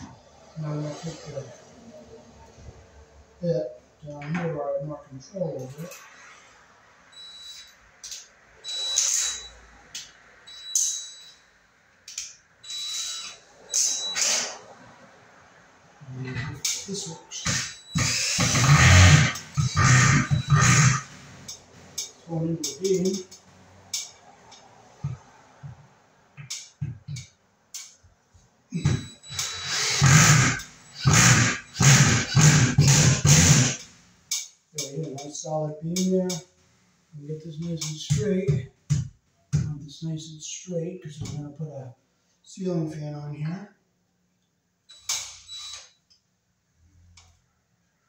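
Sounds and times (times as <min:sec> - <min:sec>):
cordless drill driving screw: 0:17.4 - 0:21.2, 0:28.9 - 0:33.9, 0:44.9 - 0:45.9.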